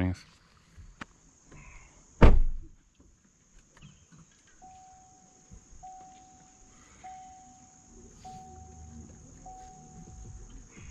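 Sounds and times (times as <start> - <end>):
electronic chime beeps: 8.3 - 10.4.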